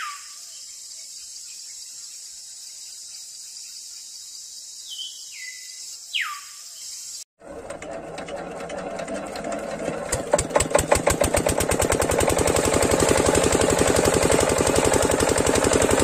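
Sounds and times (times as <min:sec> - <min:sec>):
high insect chorus: 0:00.0 - 0:07.2
whistled bird calls: 0:00.0 - 0:07.2.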